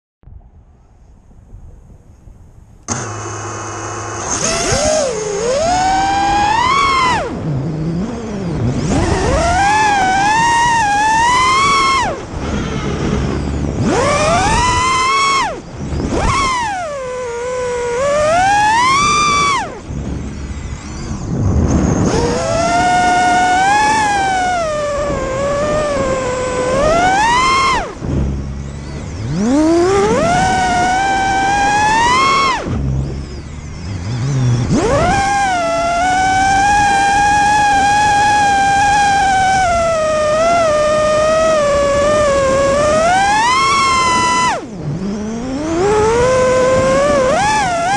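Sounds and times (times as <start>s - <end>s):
faint steady tones: 2.8s - 47.9s
quadcopter motors whining: 2.8s - 47.9s.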